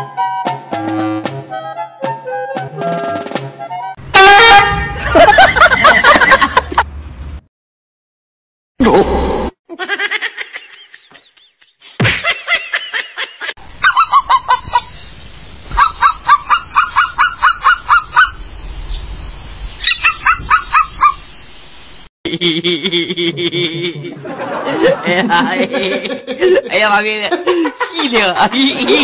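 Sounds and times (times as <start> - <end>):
cats calling: 19.8 - 21.2.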